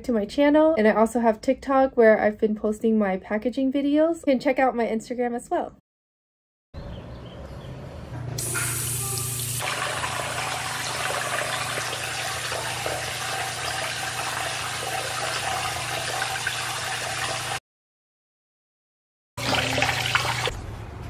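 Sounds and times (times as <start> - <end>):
water running from a tap: 8.4 - 17.6, 19.4 - 20.5.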